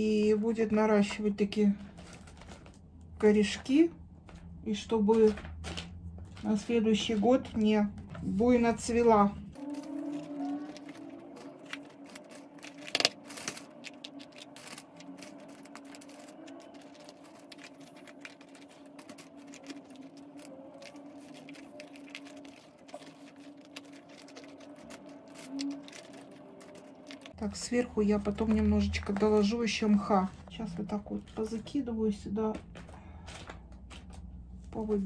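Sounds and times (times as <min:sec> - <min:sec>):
steady low hum: 0:00.0 - 0:35.0
bark pieces rattling in plastic pot: 0:10.0 - 0:27.3.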